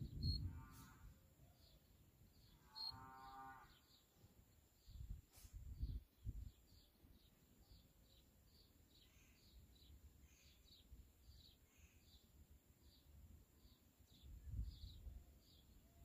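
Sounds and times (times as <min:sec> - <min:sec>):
wind rumbling on microphone: 0:00.0 - 0:01.2, 0:04.9 - 0:06.6, 0:14.3 - 0:15.2
small bird chirping: 0:00.0 - 0:04.2
cow mooing faintly: 0:00.4 - 0:01.2, 0:02.6 - 0:03.9.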